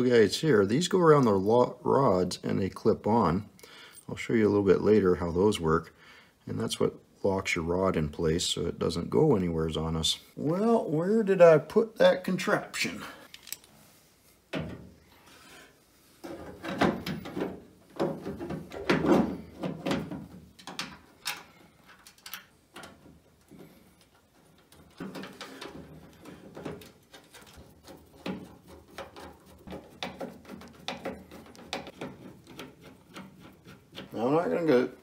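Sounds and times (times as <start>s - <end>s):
metal latch clicks and scrapes: 13.2s - 13.7s, 20.6s - 23.0s.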